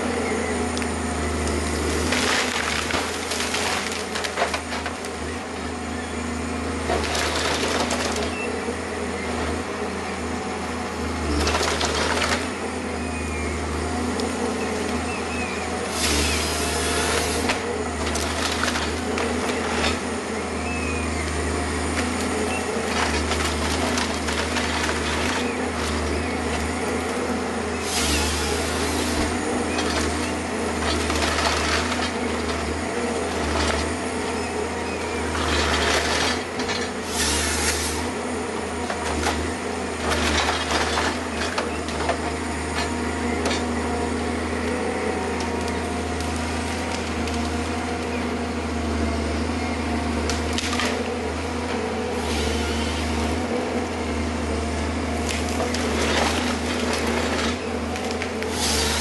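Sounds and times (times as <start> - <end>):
diesel engine running: 0.0 - 59.0
hydraulic chain saw cutting wood: 14.9 - 20.4, 21.9 - 43.8, 50.2 - 53.8, 54.8 - 59.0.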